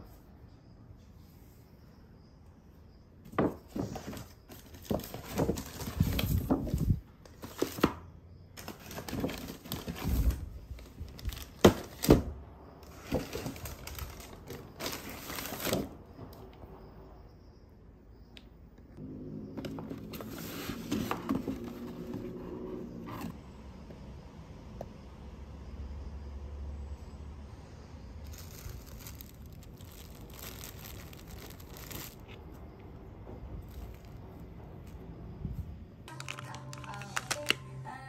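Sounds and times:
plastic and tissue paper crinkling: 0:13.0 - 0:15.9, 0:28.2 - 0:32.4.

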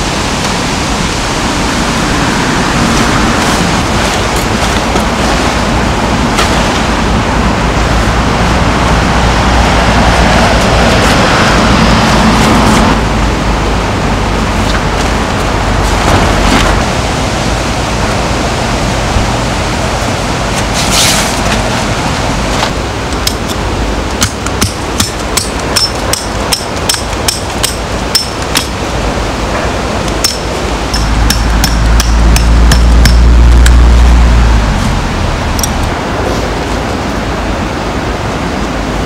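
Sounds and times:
mountain stream rushing: 0:00.0 - 0:39.0
hammering metal tent pegs: 0:24.2 - 0:28.8, 0:30.1 - 0:33.4
low rumble: 0:30.8 - 0:36.3.

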